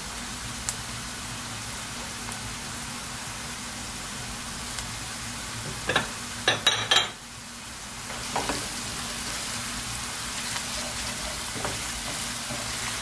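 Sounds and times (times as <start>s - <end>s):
vegetables sizzling in oil: 0.0s - 13.0s
spatula stirring vegetables: 8.1s - 13.0s.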